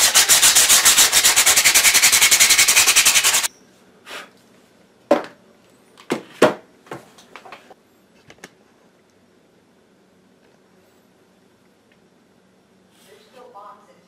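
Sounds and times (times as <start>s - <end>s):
sanding metal by hand: 0.0s - 3.5s.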